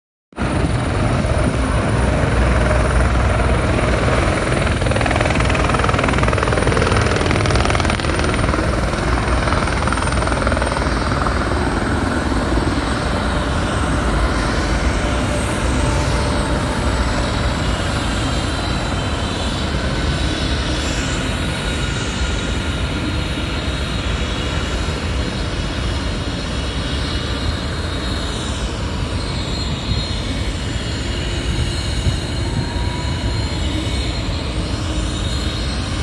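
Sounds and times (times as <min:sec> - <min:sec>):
high whine falling in pitch: 0:00.4 - 0:20.2
helicopter rotor beating: 0:00.4 - 0:36.0.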